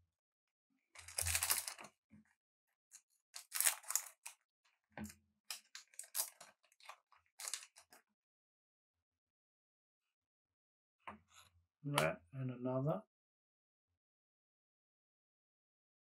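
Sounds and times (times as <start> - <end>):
cards rustling and sliding: 3.4 - 4.4.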